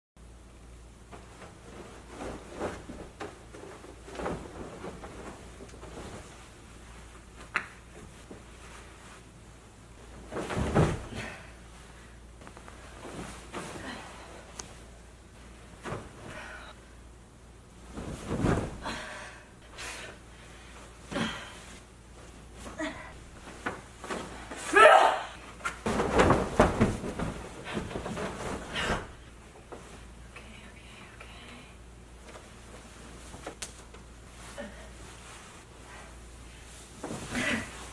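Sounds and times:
comforter rustling: 0.5 - 30.2, 32.1 - 37.9
dull thumps on bed: 25.6 - 29.1.

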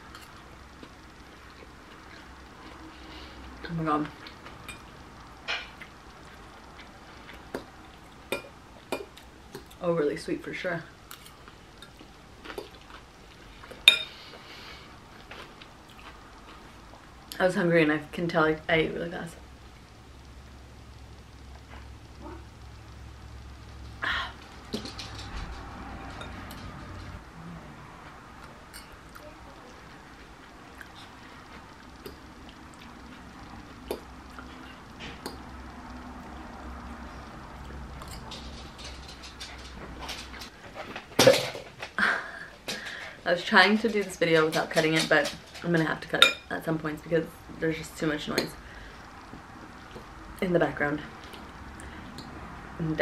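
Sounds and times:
low steady hum: 0.0 - 53.0
wet chewing and mouth sounds: 11.1 - 14.5, 15.1 - 17.4, 28.0 - 39.7.

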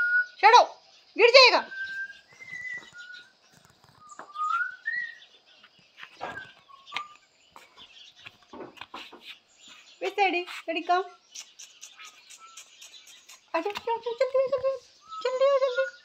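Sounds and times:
sandal footsteps on concrete: 1.8 - 11.6.

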